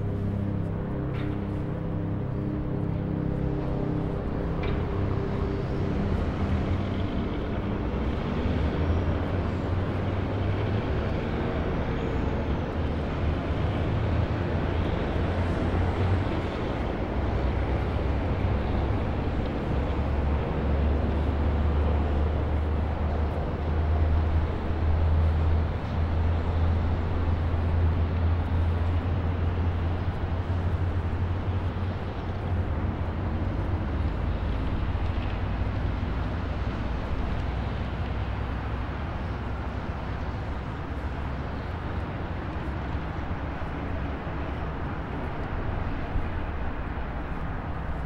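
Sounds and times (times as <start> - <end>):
car road noise: 0.0 - 48.0.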